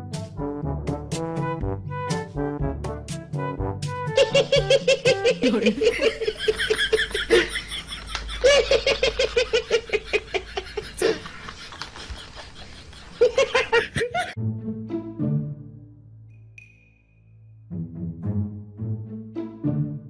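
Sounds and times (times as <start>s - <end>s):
person laughing hard: 4.2s - 14.4s.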